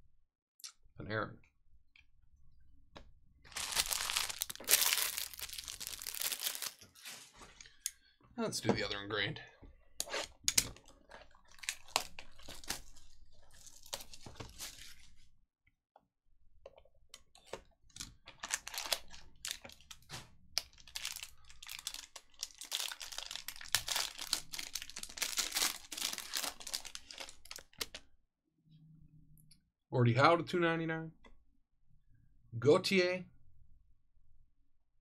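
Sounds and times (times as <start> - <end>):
wrapping tearing and crinkling: 3.5 - 7.3, 11.2 - 15.2, 18.3 - 28.0.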